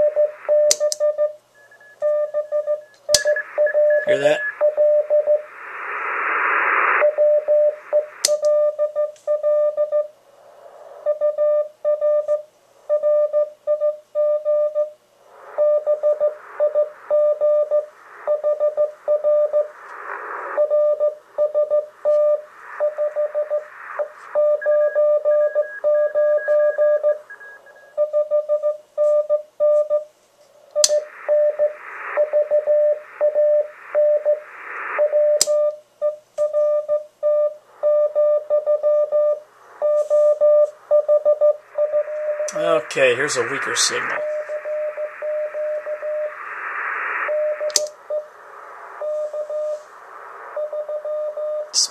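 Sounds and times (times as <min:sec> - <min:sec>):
radio band hiss: 0:03.4 - 0:04.7, 0:05.4 - 0:07.1, 0:10.2 - 0:11.0, 0:15.2 - 0:17.1, 0:17.9 - 0:18.3, 0:19.0 - 0:20.6, 0:21.2 - 0:24.4, 0:30.4 - 0:35.4, 0:39.4 - 0:40.9, 0:41.6 - 0:51.9
morse code tone: 0:36.5 - 0:46.4
switch clicking: 0:47.7 - 0:47.9.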